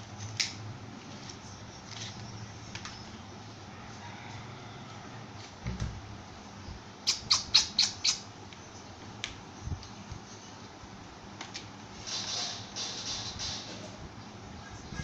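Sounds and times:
small bird chirping: 6.6s - 8.9s.

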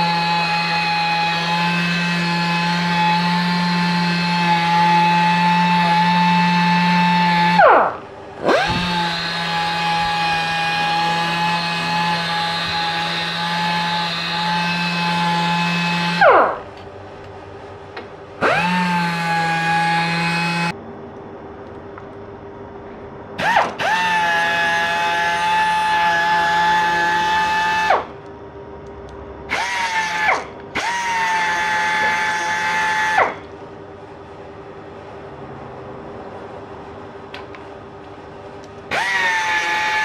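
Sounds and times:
pneumatic air sander whining: 0.0s - 16.8s, 18.4s - 20.8s, 23.4s - 28.2s, 29.5s - 33.5s, 38.8s - 40.0s.

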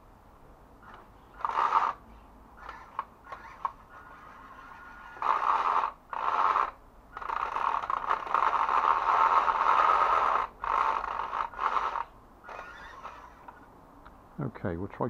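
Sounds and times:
toy truck motor whirring: 0.8s - 13.7s.

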